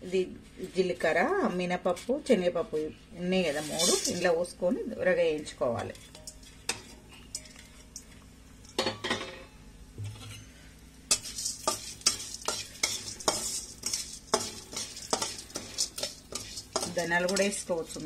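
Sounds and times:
light sizzle of roasting: 0.0s - 18.0s
spatula scraping steel pan: 3.4s - 4.5s, 5.7s - 7.9s, 11.1s - 18.0s.

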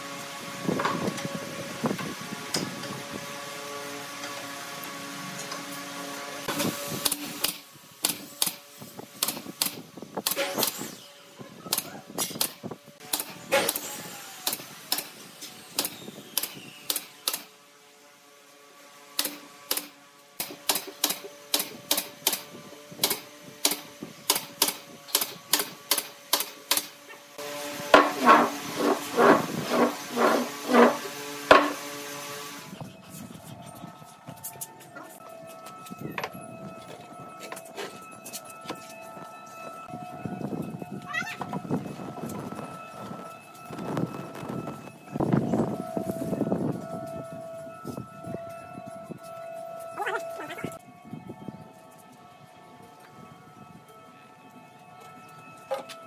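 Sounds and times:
nail gun firing: 7.0s - 8.6s, 9.2s - 10.9s, 11.7s - 17.5s, 19.2s - 27.0s, 27.9s - 31.8s.

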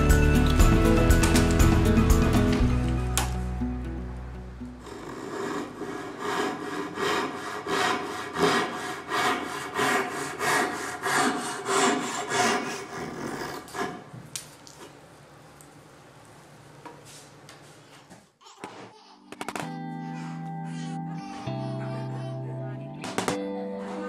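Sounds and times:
hand saw cutting wood: 4.8s - 14.2s.

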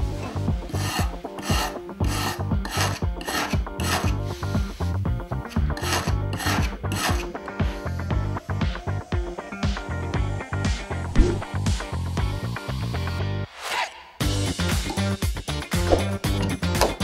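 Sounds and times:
background music: 0.0s - 17.0s
brush scrubbing metal blade: 0.7s - 4.4s, 5.6s - 7.3s, 15.9s - 16.2s.

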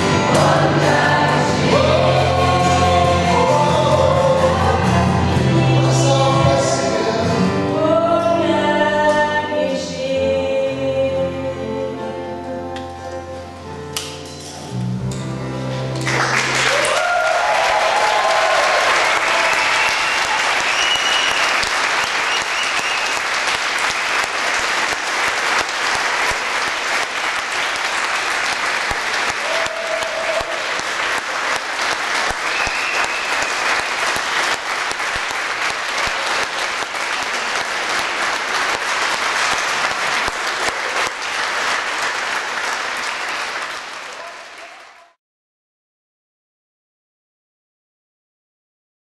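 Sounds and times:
choir singing: 0.0s - 11.7s
audience applauding: 16.0s - 45.2s.

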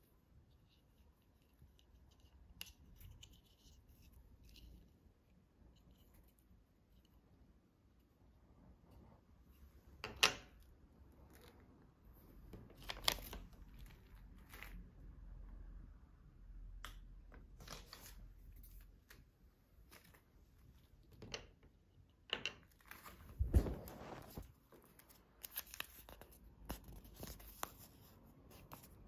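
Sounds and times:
hands rustling: 23.2s - 24.5s.

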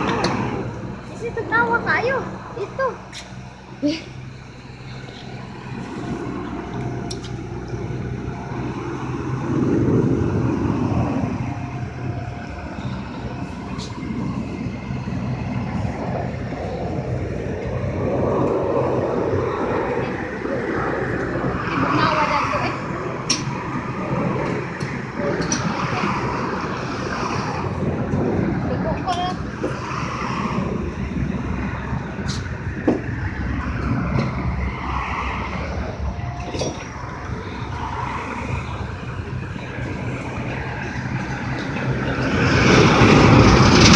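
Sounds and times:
bus engine idling: 0.0s - 43.9s
road traffic passing: 0.0s - 43.9s.

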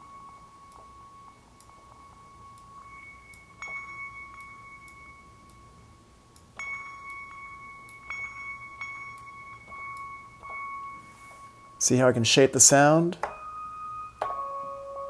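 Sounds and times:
bell-like synthesizer note with echoes: 0.0s - 15.0s.

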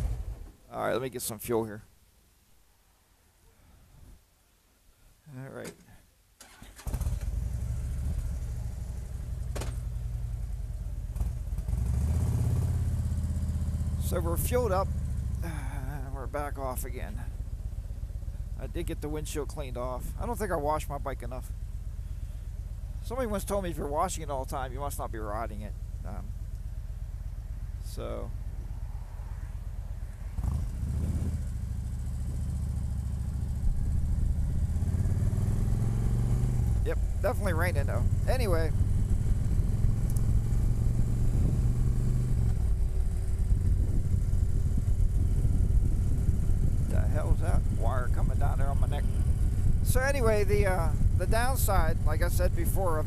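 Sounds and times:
motorcycle engine idling: 6.9s - 11.8s, 12.6s - 28.8s, 30.6s - 35.0s, 42.6s - 53.0s.

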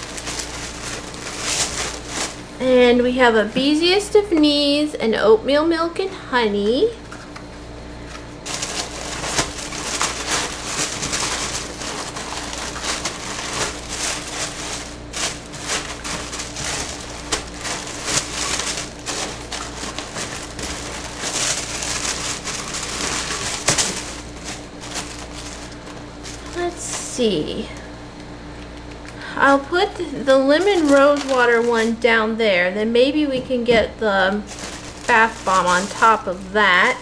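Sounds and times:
tissue paper rustling: 0.0s - 2.6s, 8.0s - 27.6s, 30.2s - 32.1s, 34.3s - 37.0s.

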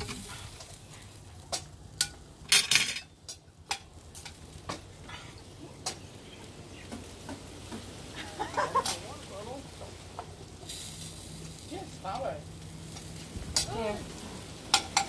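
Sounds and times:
faint steady hiss: 0.0s - 15.0s
utensils and dishes clinking: 2.0s - 4.4s.

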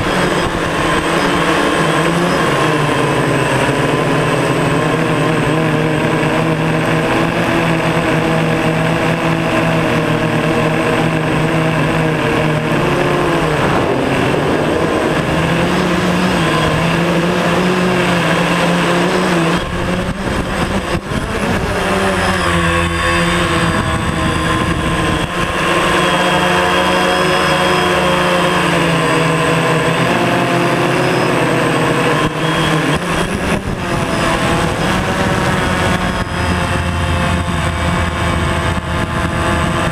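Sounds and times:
drone propellers whining: 0.0s - 39.9s.

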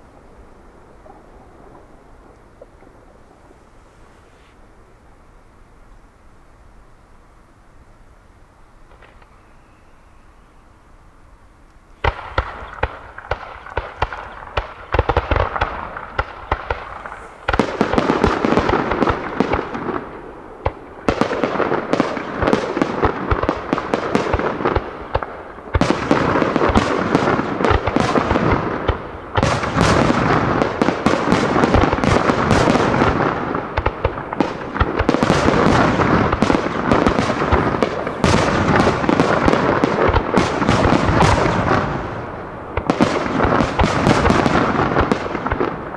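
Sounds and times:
fireworks bursting: 8.9s - 10.2s, 12.0s - 45.9s.

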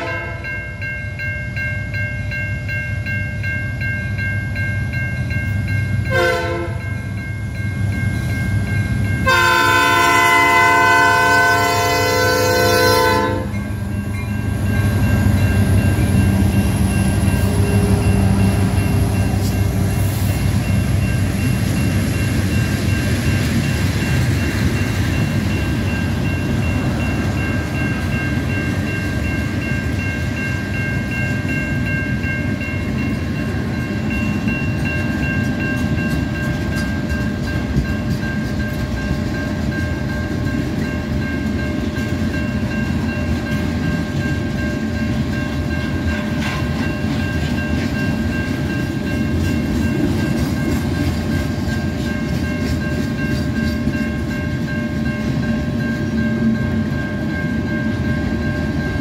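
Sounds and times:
freight train rumbling past: 0.0s - 59.0s
high-pitched steady tones: 13.4s - 59.0s.

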